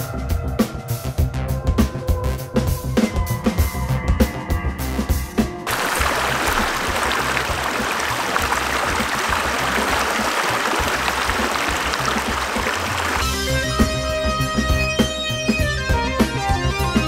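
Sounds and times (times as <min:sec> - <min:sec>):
river water over stones: 0:05.7 - 0:13.2.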